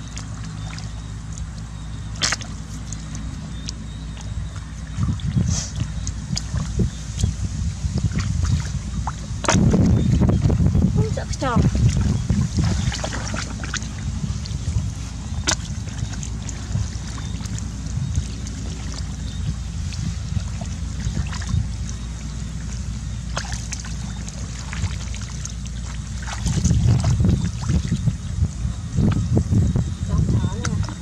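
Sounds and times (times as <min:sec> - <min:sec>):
hands scooping wet mud: 0:00.0 - 0:10.3, 0:11.0 - 0:28.2, 0:30.0 - 0:31.0
faint water splashes: 0:00.0 - 0:31.0
low rumble: 0:00.0 - 0:31.0.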